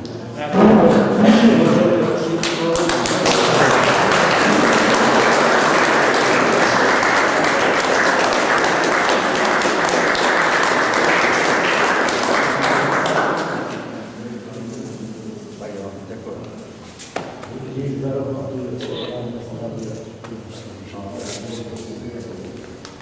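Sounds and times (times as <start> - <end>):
audience clapping: 2.4 - 13.8.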